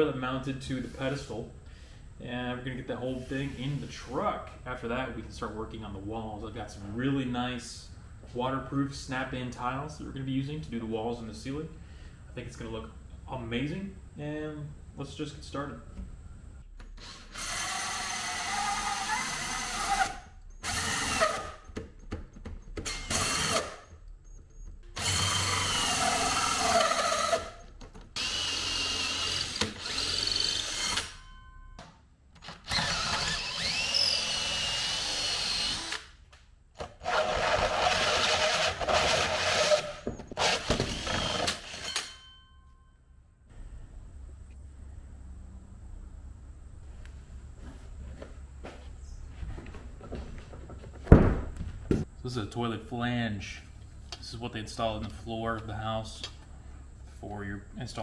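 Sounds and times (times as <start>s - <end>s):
drill hole saw cutting wood: 17.0s - 21.6s, 22.9s - 23.8s, 25.0s - 27.6s, 28.2s - 31.2s, 32.5s - 36.1s, 36.8s - 42.0s.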